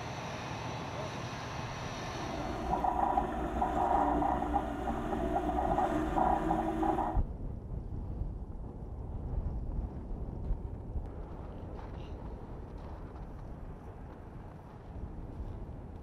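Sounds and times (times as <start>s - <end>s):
steady whine: 1.6s - 7.3s
truck engine rumble: 1.7s - 7.2s.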